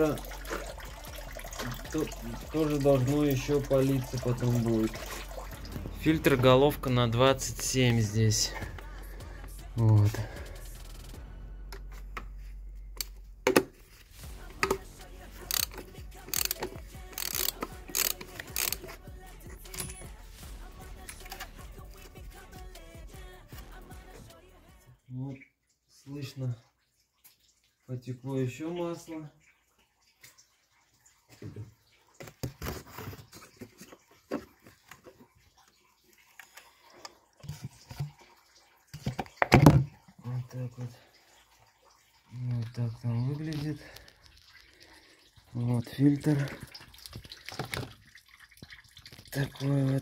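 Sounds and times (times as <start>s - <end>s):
ratchet wrench clicking: 15.5s - 18.9s.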